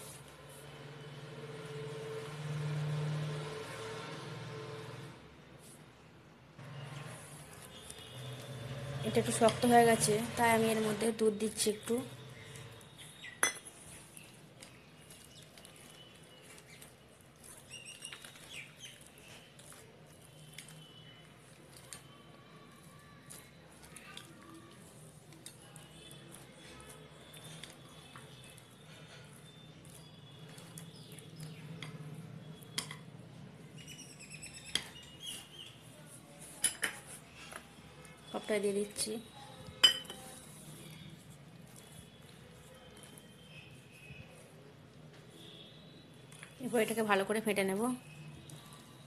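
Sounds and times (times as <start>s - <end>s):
spatula scraping batter in glass bowl: 7.0s - 24.0s, 38.4s - 44.4s
spatula tapping glass bowl: 13.4s - 13.7s, 39.8s - 40.3s
bird chirping: 33.8s - 35.8s.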